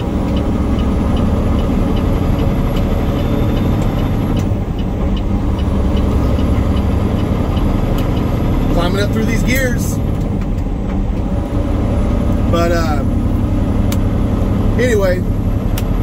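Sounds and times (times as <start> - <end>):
truck engine and road drone: 0.0 - 16.0
light ticking: 0.1 - 8.5.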